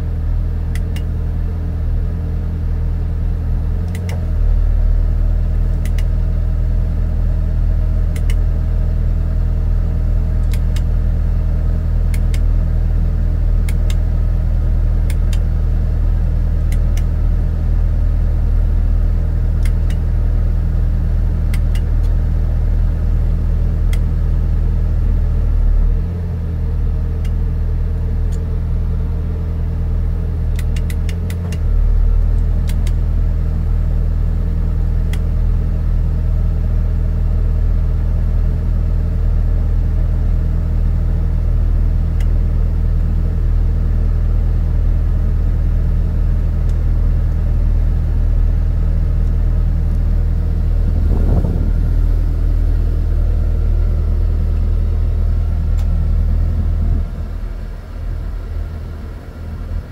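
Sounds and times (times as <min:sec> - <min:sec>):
engine idling: 0:00.0 - 0:59.9
light clicks: 0:03.8 - 0:04.3, 0:05.7 - 0:06.1, 0:08.1 - 0:08.4.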